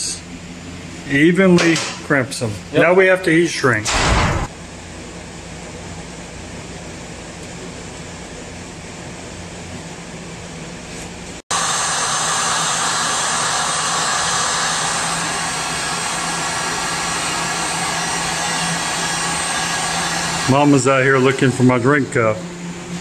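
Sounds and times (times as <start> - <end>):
heat gun fan blowing: 11.5 - 23.0.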